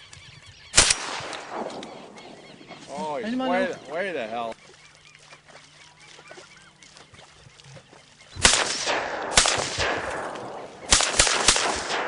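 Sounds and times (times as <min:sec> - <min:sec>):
shotgun blasts with echo: 0:00.8 - 0:02.2, 0:08.4 - 0:12.0.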